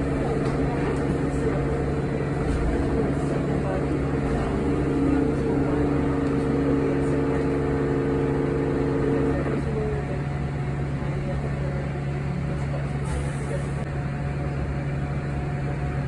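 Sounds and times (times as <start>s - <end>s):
electric bus low hum: 0.0s - 16.0s
road rumble: 0.0s - 16.0s.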